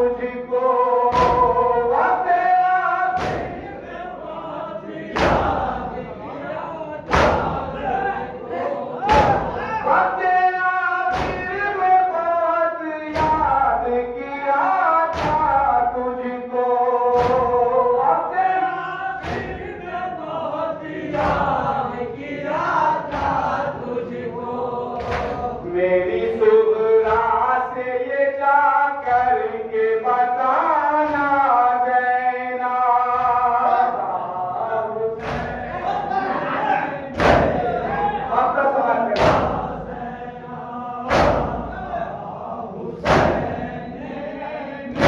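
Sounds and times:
men chanting together: 0:00.0 - 0:45.0
chest beating slaps: 0:01.1 - 0:01.7, 0:03.2 - 0:03.7, 0:05.1 - 0:05.8, 0:07.1 - 0:08.0, 0:09.0 - 0:09.7, 0:11.1 - 0:11.6, 0:15.1 - 0:15.6, 0:17.2 - 0:17.7, 0:19.2 - 0:19.7, 0:25.0 - 0:25.6, 0:35.2 - 0:36.0, 0:37.2 - 0:38.2, 0:39.2 - 0:40.0, 0:41.0 - 0:41.9, 0:43.0 - 0:43.8.

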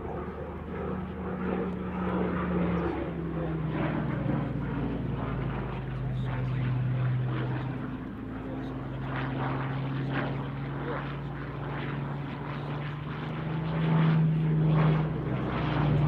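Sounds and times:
propeller aircraft engine overhead: 0:00.0 - 0:16.0.

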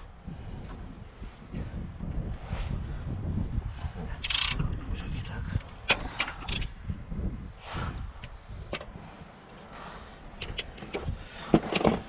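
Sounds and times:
low rumble: 0:00.0 - 0:10.4
tools clicking and knocking: 0:04.2 - 0:04.8, 0:10.4 - 0:12.0.

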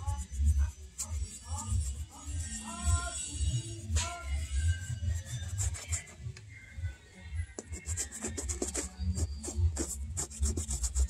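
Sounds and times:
background music with low beat: 0:00.0 - 0:11.0
toothbrush scrubbing suede: 0:04.7 - 0:06.1, 0:07.6 - 0:11.0.

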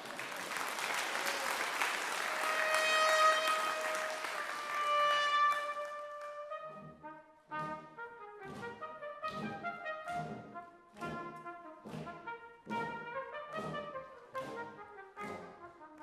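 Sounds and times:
brass band playing: 0:02.2 - 0:16.0.

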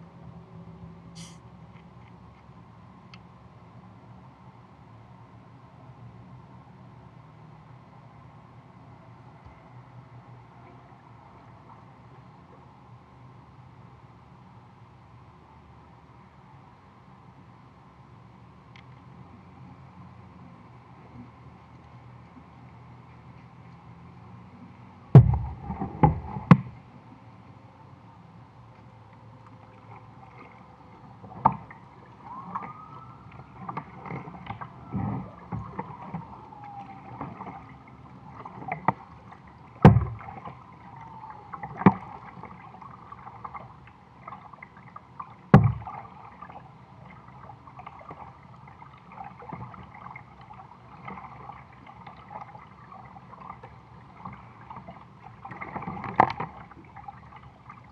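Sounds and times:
paddle knocks and splashes: 0:25.2 - 0:26.8, 0:31.3 - 0:57.9.

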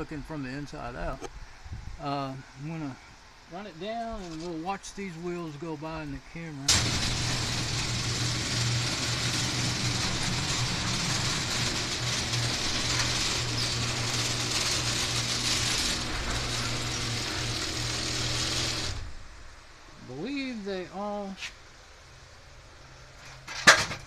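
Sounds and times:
rollers rolling along steel tracks: 0:06.7 - 0:19.0
garage door opener motor hum: 0:06.7 - 0:19.3.

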